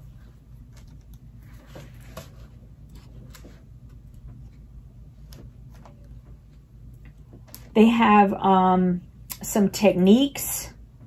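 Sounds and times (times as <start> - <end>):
book pages rustling: 0.0 - 4.5
steady low hum: 0.0 - 11.0.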